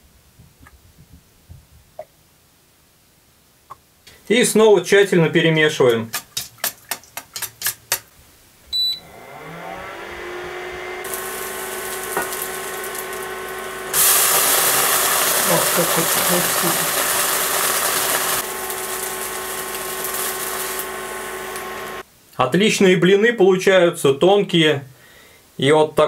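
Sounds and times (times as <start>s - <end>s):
cooktop electric hum: 4.0s - 22.3s
short beep: 8.7s - 9.0s
batter sizzling in a frying pan: 11.0s - 22.0s.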